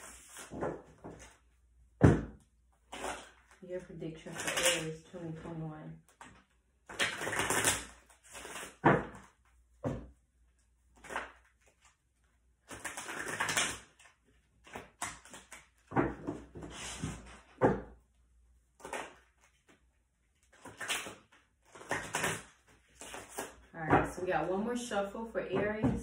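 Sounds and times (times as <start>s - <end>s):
cards being shuffled: 12.6s - 17.3s, 18.8s - 23.7s.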